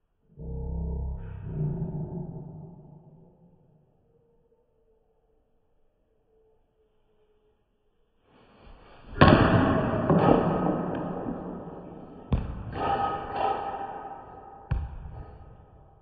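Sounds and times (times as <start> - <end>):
bat cracking baseball: 9.1 - 14.7
ball bouncing on concrete: 9.2 - 13.8, 14.6 - 15.5.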